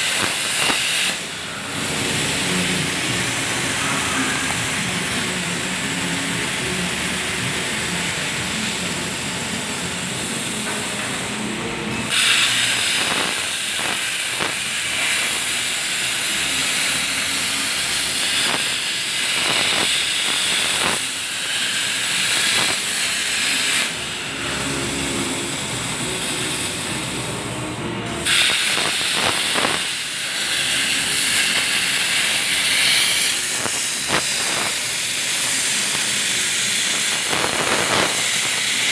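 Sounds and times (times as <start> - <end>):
plasma cutter hissing: 0.0 - 11.4, 12.0 - 27.4, 28.1 - 38.9
crackling: 28.3 - 38.9.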